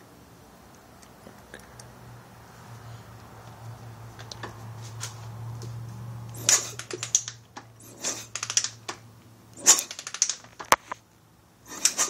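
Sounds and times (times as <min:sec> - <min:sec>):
low steady hum: 0:00.0 - 0:11.8
sharp metallic clicks and taps: 0:06.3 - 0:07.7, 0:08.3 - 0:11.0.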